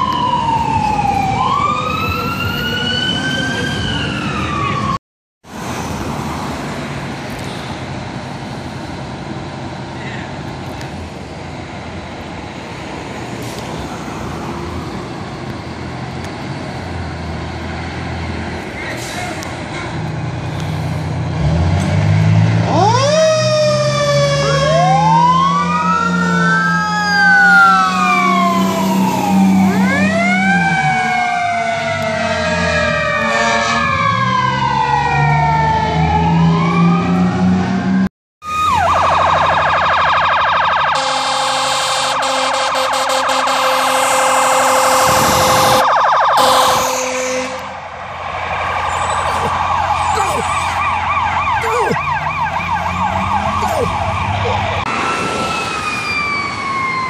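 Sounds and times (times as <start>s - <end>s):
deep siren tone: 0.0s - 5.0s, 22.2s - 57.0s
rapid yelp siren: 0.0s - 5.0s, 22.7s - 57.0s
siren wails rising and falling: 0.0s - 5.0s, 13.1s - 15.5s, 21.4s - 57.0s
fire truck horn blast: 32.2s - 34.2s, 40.9s - 47.8s.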